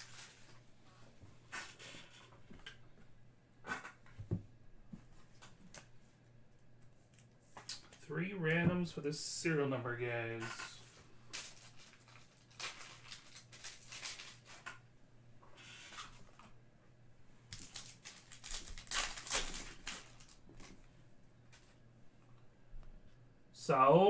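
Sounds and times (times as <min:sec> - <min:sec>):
foil wrapper crinkling and tearing: 0:00.0 - 0:00.5, 0:11.3 - 0:14.6, 0:17.5 - 0:20.7.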